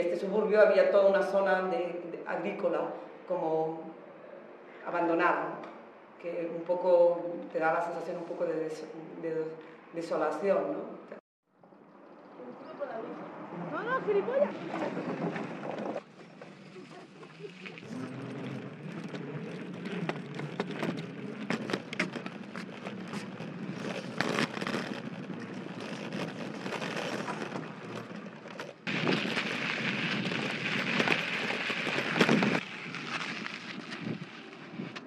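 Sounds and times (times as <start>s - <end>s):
bicycle rolling over wooden planks: 14.4s - 35.0s
tyres on gritty surface hiss: 16.1s - 35.0s.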